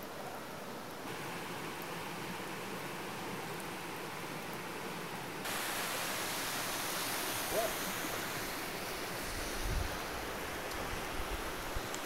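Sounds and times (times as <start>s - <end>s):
whitewater rushing: 5.4s - 12.0s.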